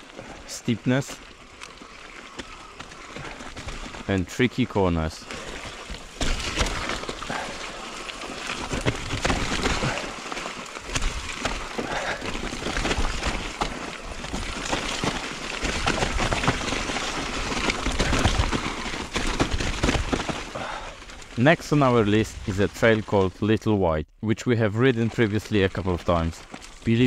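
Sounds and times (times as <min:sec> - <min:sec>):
bike tyres on dirt: 0:00.0 - 0:23.4, 0:25.1 - 0:27.0
bike clattering and rattling: 0:01.4 - 0:04.1, 0:05.3 - 0:21.4.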